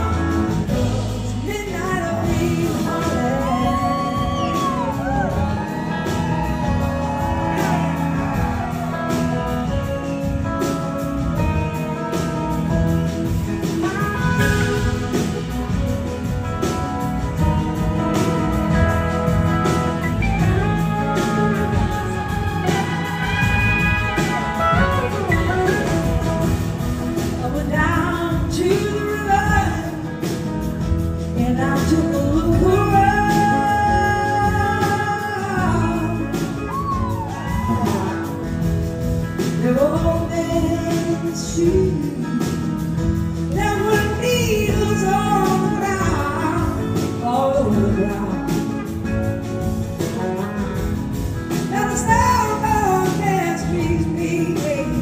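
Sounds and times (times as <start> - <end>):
woman singing: 0.0 - 9.8, 13.8 - 38.8, 39.4 - 49.2, 51.5 - 55.0
blues-rock band playing: 0.0 - 55.0
electric guitar: 0.0 - 55.0
horn section: 17.3 - 27.4.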